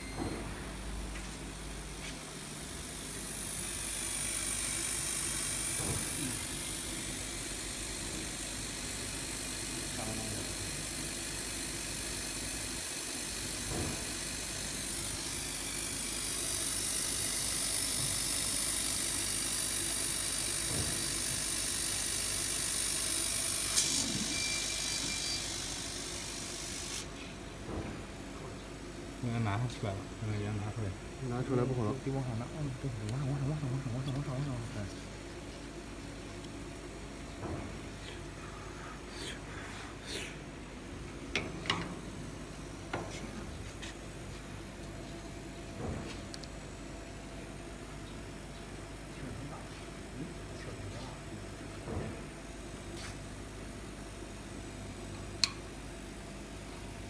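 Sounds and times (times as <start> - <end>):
low machine hum: 0.0 - 26.3, 27.1 - 57.0
laser cutter hissing: 2.2 - 27.3.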